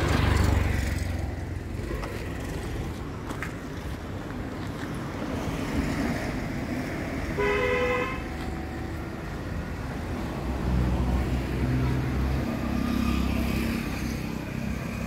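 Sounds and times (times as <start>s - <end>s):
road traffic rumbling: 0.0s - 15.0s
vehicle horn tooting: 7.4s - 8.3s.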